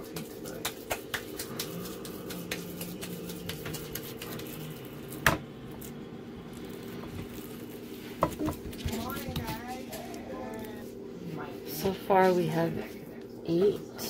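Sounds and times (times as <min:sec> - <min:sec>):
hands squishing ground meat: 0:00.0 - 0:05.2
steady low hum: 0:00.0 - 0:14.0.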